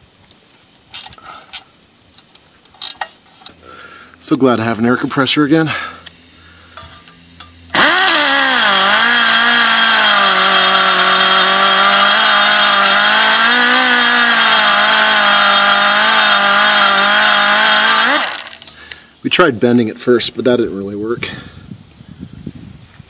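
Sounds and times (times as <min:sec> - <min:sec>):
air die grinder whining: 0:07.7 - 0:18.9.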